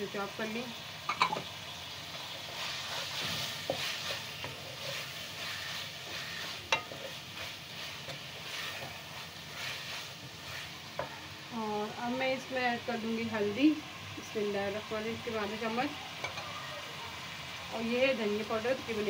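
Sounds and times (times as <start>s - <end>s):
vegetables sizzling in oil: 0.0s - 19.0s
spoon scraping pan: 2.1s - 11.2s.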